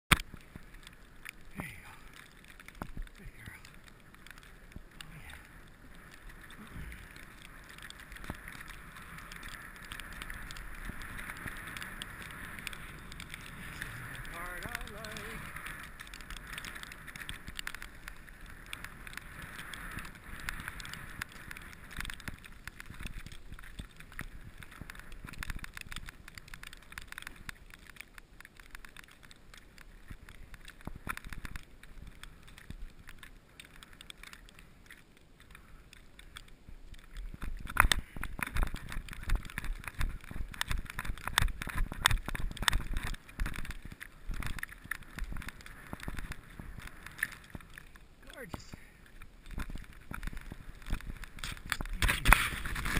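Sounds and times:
sled knocking and rumbling: 0.1 - 52.9
sled runners hissing through snow: 3.1 - 25.6, 50.2 - 52.9.

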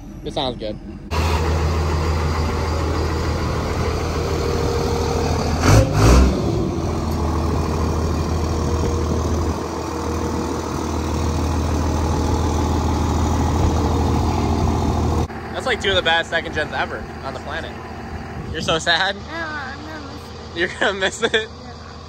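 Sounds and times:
pickup engine idling: 0.0 - 22.0.

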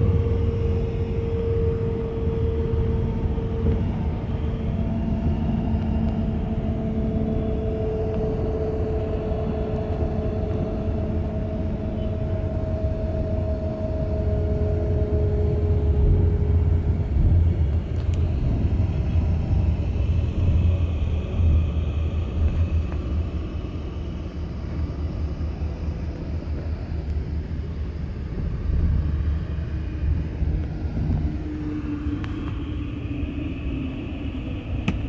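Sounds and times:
faint steady whine: 0.0 - 35.0
vehicle engine and tyres rumbling: 0.0 - 35.0.

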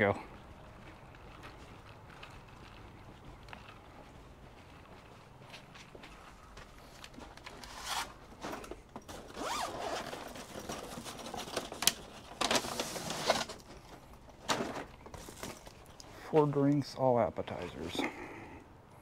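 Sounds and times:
rustling handling noise: 0.9 - 18.0
zipper-like rasps: 7.6 - 8.2, 9.3 - 10.2.

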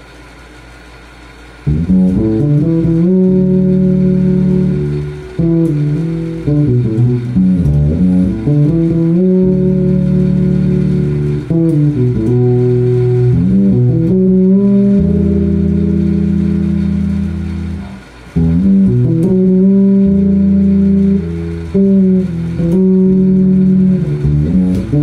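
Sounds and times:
fretless electric bass fingerstyle: 1.6 - 25.0.

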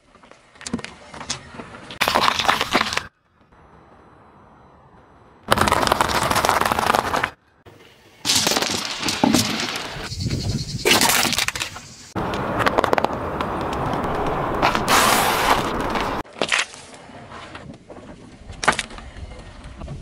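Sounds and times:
tyre crushing objects on asphalt: 5.5 - 7.4, 8.3 - 10.0, 11.0 - 16.8.

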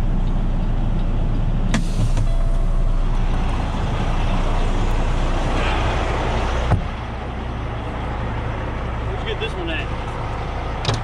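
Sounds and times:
road noise: 0.0 - 11.0
truck diesel engine running: 0.0 - 11.0.

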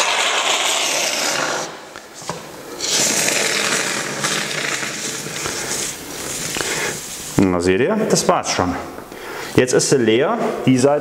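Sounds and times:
expanding foam spray hissing: 0.0 - 1.9, 2.8 - 7.5.

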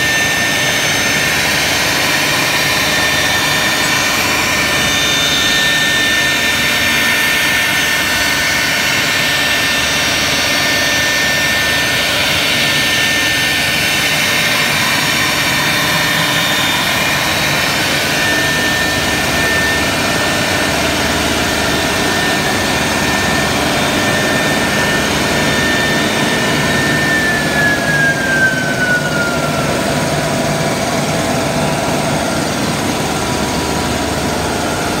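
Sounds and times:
loud steady mechanical noise: 0.0 - 35.0
router spindles whining: 0.0 - 35.0.

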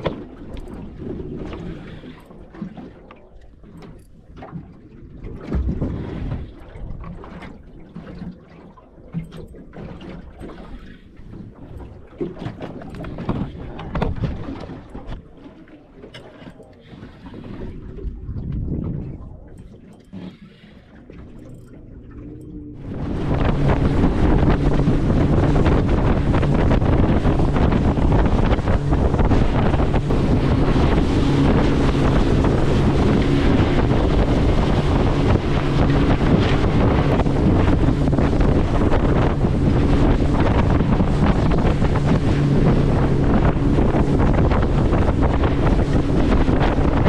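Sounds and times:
outboard motor drone: 0.0 - 47.0
water sloshing against boat hull: 0.0 - 47.0
wind buffeting microphone: 9.1 - 15.5, 16.4 - 20.2, 21.0 - 47.0.

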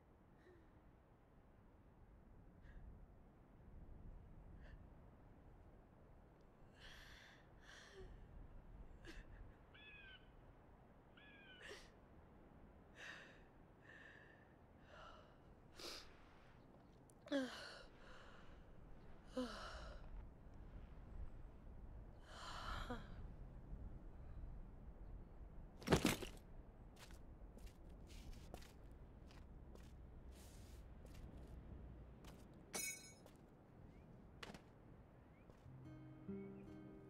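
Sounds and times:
woman crying quietly: 8.9 - 10.0.

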